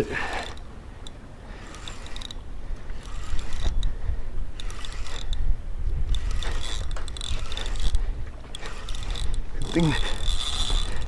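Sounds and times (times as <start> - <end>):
fishing reel whirring and ticking: 0.0 - 11.0
wind rumble on microphone: 2.3 - 11.0.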